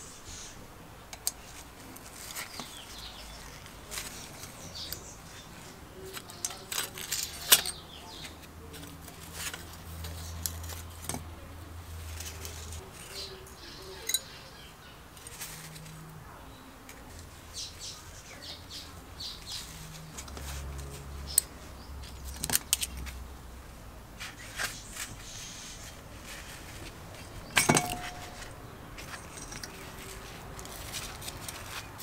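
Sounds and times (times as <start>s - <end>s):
metal parts clinking and rattling: 6.2s - 11.2s, 27.4s - 31.8s.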